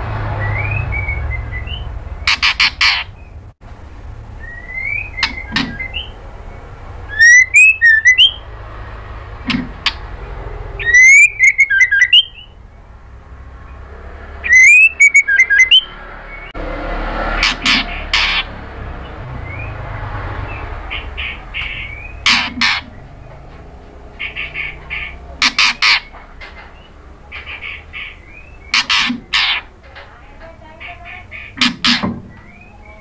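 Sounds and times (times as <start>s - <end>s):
bird singing whistled notes: 0.4s - 2.4s, 4.4s - 6.2s, 7.1s - 8.5s, 10.8s - 12.6s, 14.4s - 16.5s, 27.9s - 29.0s, 32.3s - 33.0s.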